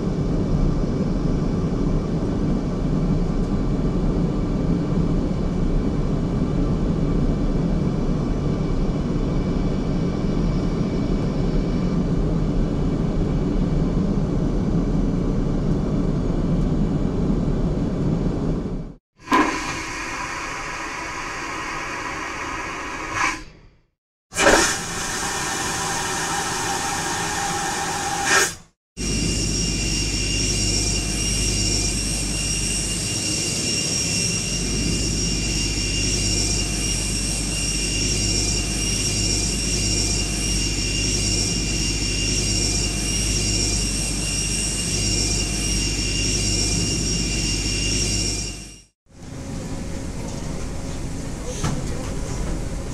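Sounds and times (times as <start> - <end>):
jet turbines running: 19.2 - 23.4, 24.3 - 48.0, 49.2 - 52.9
vacuum toilet flushing: 19.2 - 23.4, 24.3 - 28.6.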